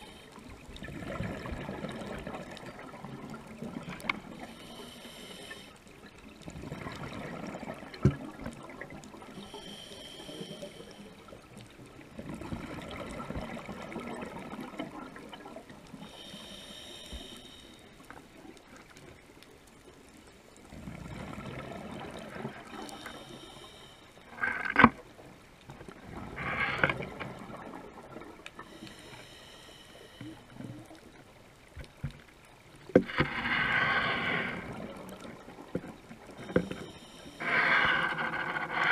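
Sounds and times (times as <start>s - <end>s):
regulator hissing inhale: 0.0s - 0.5s, 4.4s - 5.9s, 9.4s - 11.4s, 16.0s - 18.1s, 22.6s - 24.5s, 28.6s - 30.7s, 36.4s - 38.9s
exhaled bubbles gurgling: 0.0s - 4.5s, 6.4s - 9.5s, 12.1s - 15.8s, 20.7s - 23.1s.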